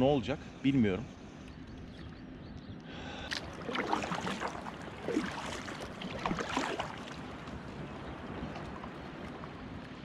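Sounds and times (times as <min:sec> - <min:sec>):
kayak paddle splashing: 0:03.2 - 0:09.9.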